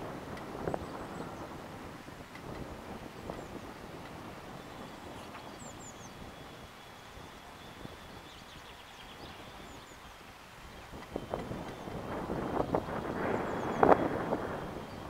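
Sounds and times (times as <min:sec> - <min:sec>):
wind rumbling on microphone: 0:00.0 - 0:15.0
small birds chirping: 0:00.6 - 0:01.6, 0:04.5 - 0:15.0.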